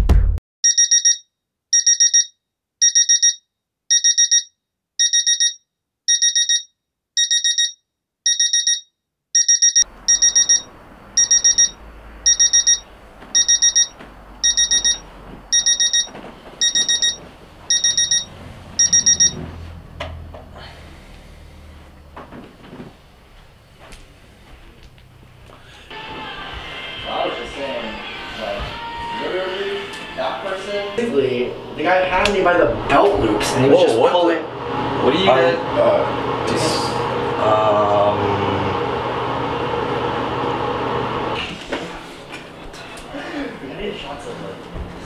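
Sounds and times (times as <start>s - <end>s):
alarm clock beeping: 0.6s - 19.4s.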